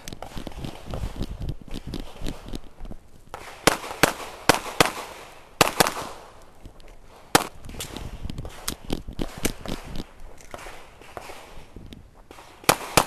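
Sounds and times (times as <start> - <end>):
pistol shots echoing: 3.3 - 6.3, 7.3 - 9.6, 12.3 - 13.0.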